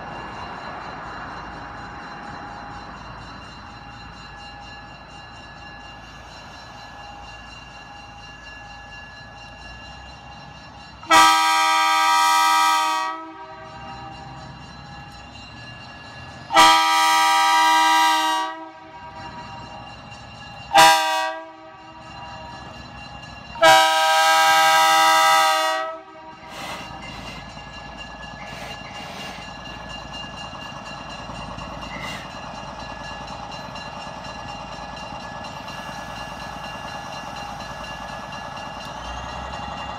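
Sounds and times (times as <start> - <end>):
railcar running: 0.0 - 39.9
train air horn blasts: 11.1 - 13.7, 16.5 - 19.1, 20.8 - 21.8, 23.6 - 26.6.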